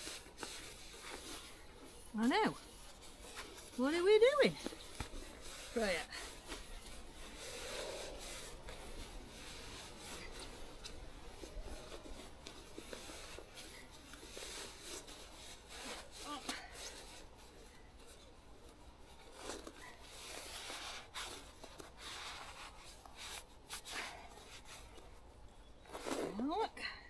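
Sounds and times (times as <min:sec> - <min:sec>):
fabric rubbing and rustling: 0:00.0 - 0:26.7.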